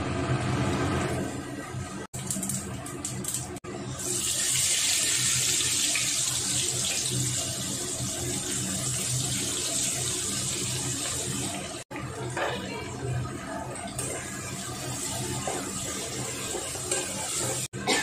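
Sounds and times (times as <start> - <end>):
onions sizzling in hot oil: 4.0 - 11.8, 14.0 - 17.7.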